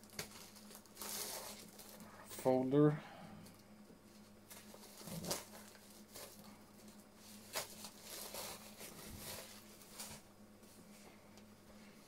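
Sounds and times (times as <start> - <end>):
plastic shrink wrap rustling: 0.0 - 2.6, 4.1 - 10.3
faint steady hum: 0.0 - 12.0.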